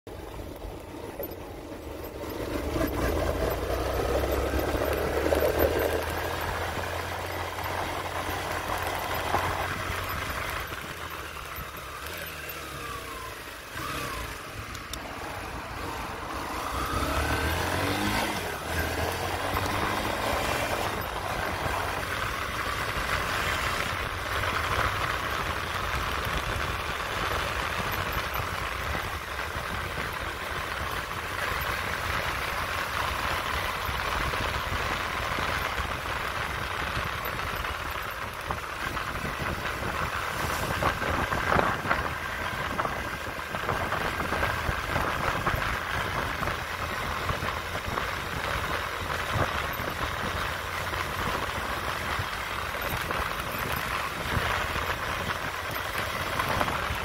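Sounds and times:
road and wind noise: 0:00.0 - 0:57.0
motorcycle engine revving: 0:00.1 - 0:57.0.

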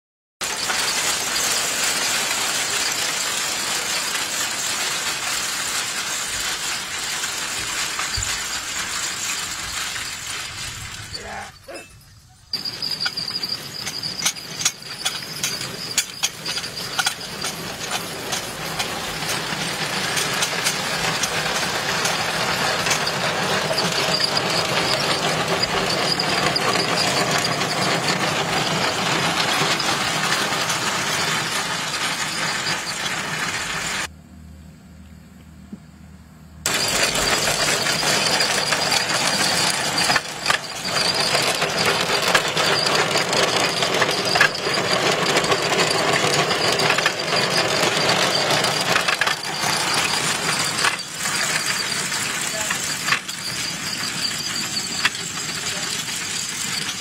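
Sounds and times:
potato digger clattering: 0:00.4 - 0:11.4, 0:12.6 - 0:34.0, 0:36.7 - 0:57.0
squeaking: 0:04.9 - 0:34.1, 0:36.7 - 0:57.0
sharp metal clanks: 0:10.9 - 0:33.5.

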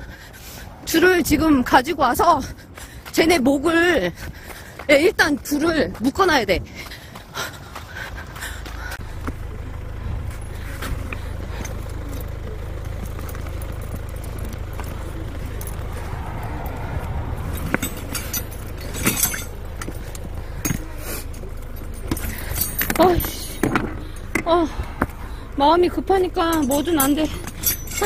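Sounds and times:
steady low rumble: 0:00.0 - 0:28.0
metal clips rattling and clinking: 0:17.5 - 0:24.6, 0:26.3 - 0:28.0.

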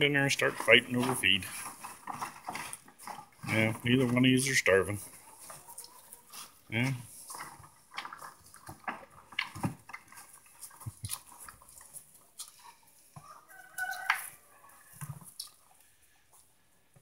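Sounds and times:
hen clucking: 0:00.0 - 0:11.3
cow crunching feed: 0:00.0 - 0:17.0.

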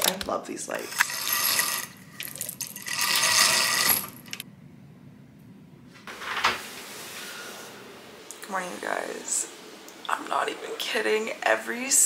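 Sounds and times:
bead chain rattling through blind: 0:01.1 - 0:04.4.

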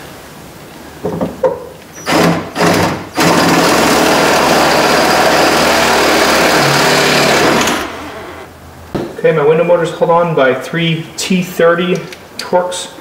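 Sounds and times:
power drill drilling metal: 0:02.0 - 0:08.5.

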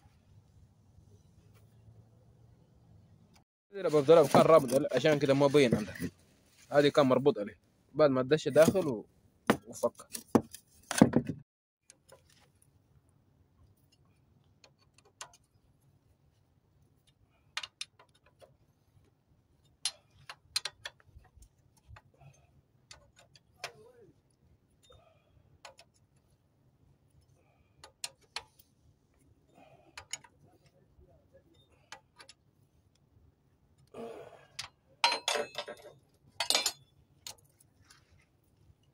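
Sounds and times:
hand tools clicking on metal: 0:17.0 - 0:18.6, 0:30.0 - 0:30.4.

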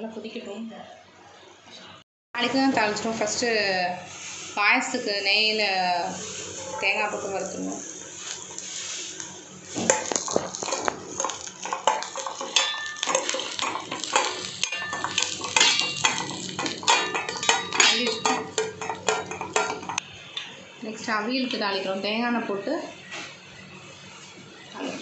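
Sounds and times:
spoon stirring in metal pan: 0:06.1 - 0:20.0.

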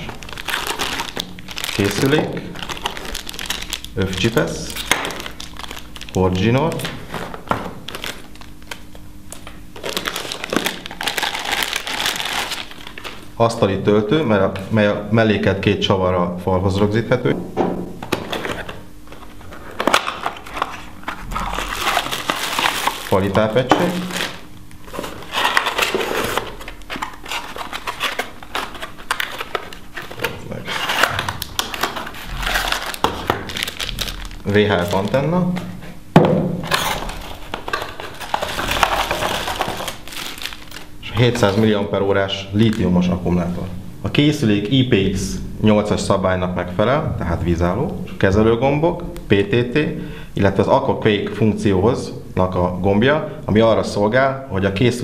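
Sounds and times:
plastic wrapping crinkling: 0:00.0 - 0:13.3, 0:18.2 - 0:35.8, 0:36.6 - 0:41.8
cardboard scraping and rustling: 0:23.9 - 0:35.1, 0:36.6 - 0:40.5.

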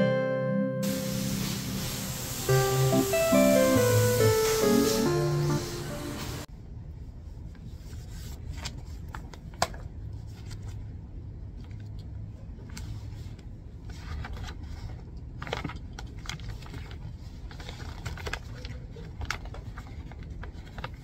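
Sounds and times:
low steady room hum: 0:05.1 - 0:21.0
paper rustling: 0:12.7 - 0:21.0.

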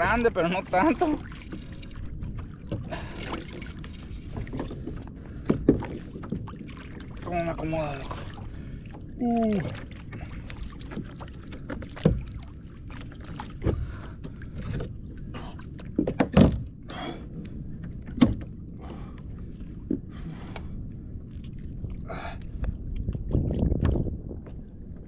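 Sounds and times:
water rushing: 0:00.0 - 0:02.1, 0:06.7 - 0:11.1
knocks and thumps on a kayak: 0:00.9 - 0:07.1, 0:10.9 - 0:12.4, 0:15.9 - 0:16.8, 0:18.0 - 0:19.0, 0:23.1 - 0:24.6.

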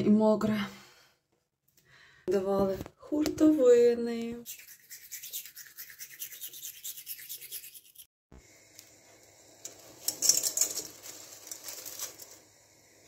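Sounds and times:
teeth brushing: 0:04.4 - 0:08.1
rustling and handling noise: 0:09.7 - 0:12.5.

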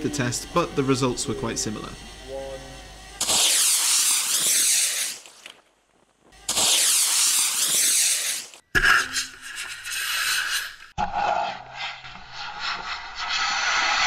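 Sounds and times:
rocket motors rushing hiss: 0:00.0 - 0:05.7, 0:06.3 - 0:08.6.

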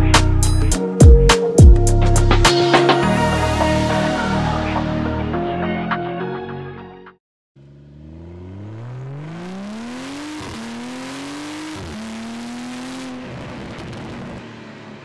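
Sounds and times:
car engine accelerating: 0:07.6 - 0:15.0
exhaust crackle and pops: 0:08.6 - 0:14.5.

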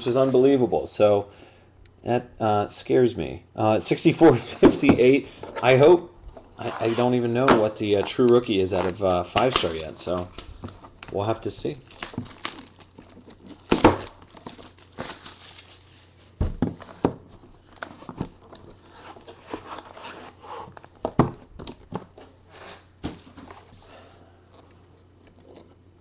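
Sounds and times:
plastic shrink wrap tearing: 0:07.8 - 0:16.0.

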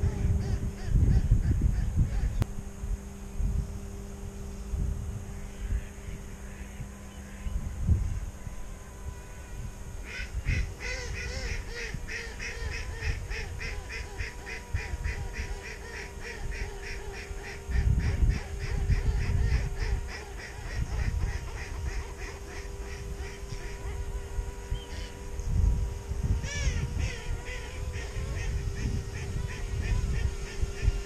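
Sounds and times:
wind buffeting microphone: 0:00.0 - 0:31.0
waterfowl calling: 0:10.0 - 0:25.2.

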